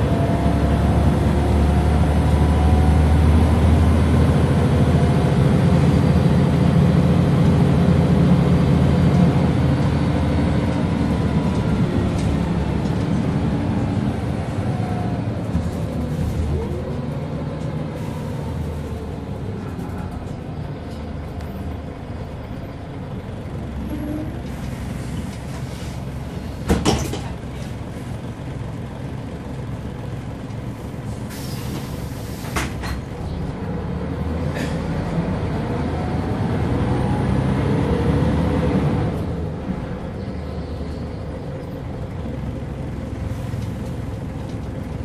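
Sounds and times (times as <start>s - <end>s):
bus engine running: 0.0s - 45.0s
short air hiss: 31.3s - 32.7s.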